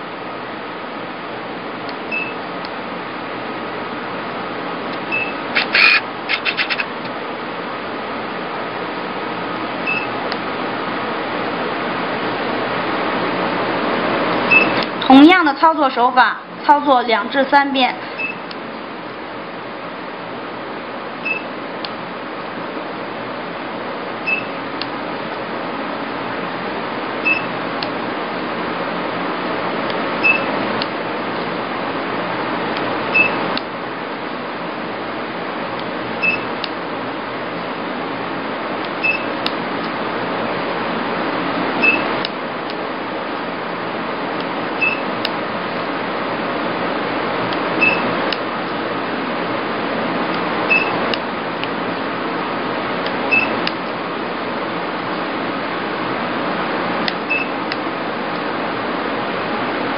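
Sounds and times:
machine fan running: 0.0 - 59.9
short high beeps: 9.9 - 10.1, 14.5 - 14.8, 24.3 - 24.5, 41.8 - 42.1, 47.8 - 48.1, 50.7 - 51.0, 53.3 - 53.6.

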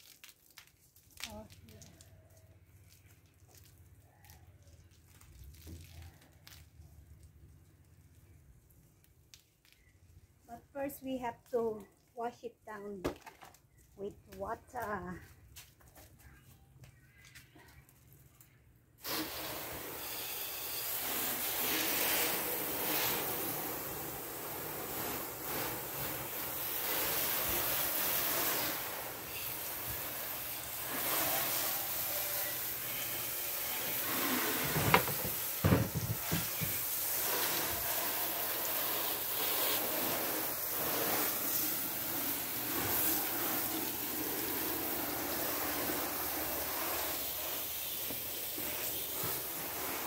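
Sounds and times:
hose nozzle spraying water: 19.0 - 50.0.

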